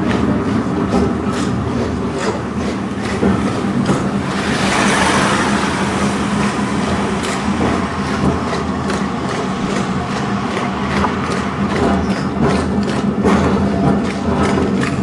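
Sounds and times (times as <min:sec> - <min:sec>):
steel wheels rumbling on rails: 0:00.0 - 0:15.0.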